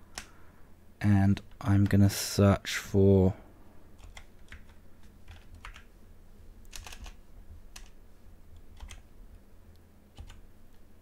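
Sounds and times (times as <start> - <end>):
keyboard keystrokes: 4.0 - 5.9, 6.7 - 8.0, 8.8 - 9.0, 10.2 - 10.4.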